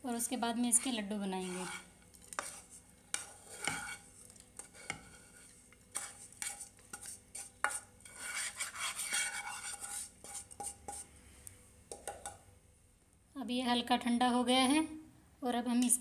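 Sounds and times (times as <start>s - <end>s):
metal spoon scraping frying pan: 0.5s - 11.1s.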